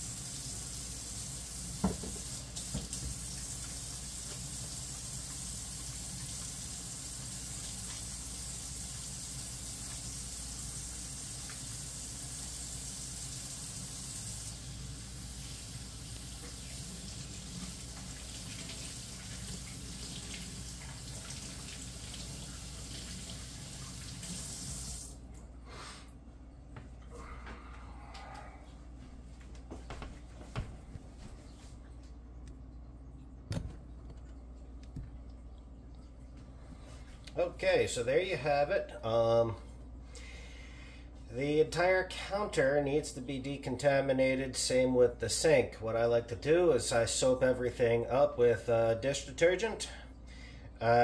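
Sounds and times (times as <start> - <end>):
faucet running into steel sink: 0.0 - 25.2.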